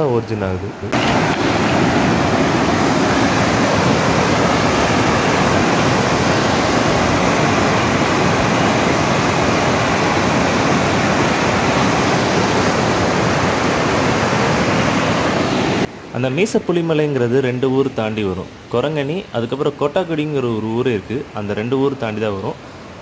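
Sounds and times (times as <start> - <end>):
stream rushing over rocks: 0.9 - 15.9.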